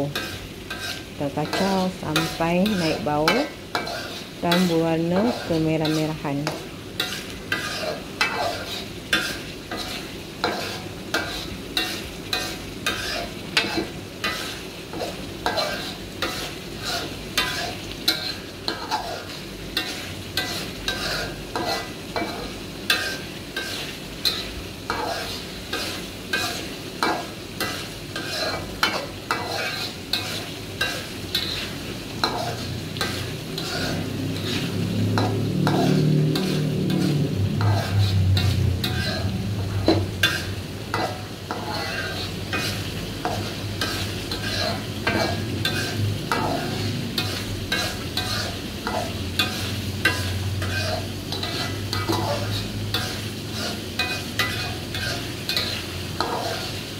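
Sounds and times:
metal spoon scraping a wok: 0:00.0 - 0:56.9
paste sizzling in oil: 0:00.0 - 0:56.9.

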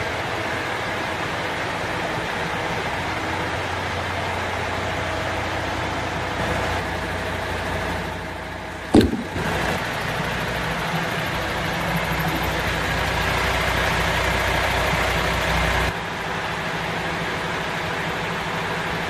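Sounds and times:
sharp knock: 0:09.0 - 0:09.6.

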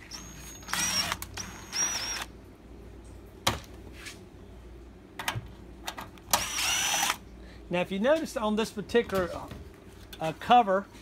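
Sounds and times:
cordless drill motor whine: 0:00.0 - 0:02.3, 0:06.4 - 0:07.2.

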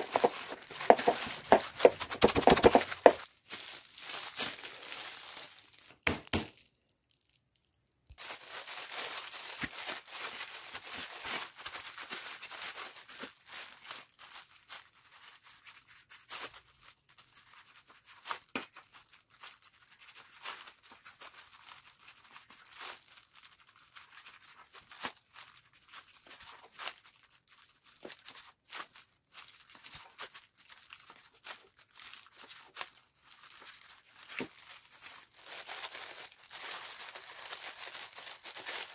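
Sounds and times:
plastic bag and gloves crinkling: 0:00.0 - 0:38.9
knife tapping on plastic board: 0:00.1 - 0:03.2.

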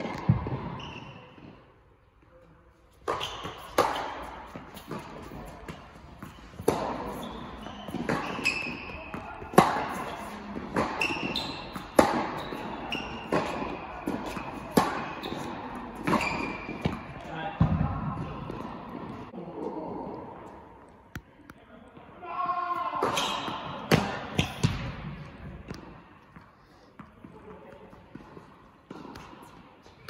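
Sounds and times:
shoes squeaking: 0:00.0 - 0:01.6, 0:02.9 - 0:17.3
tennis ball hit by rackets: 0:03.0 - 0:19.2, 0:23.0 - 0:25.9.

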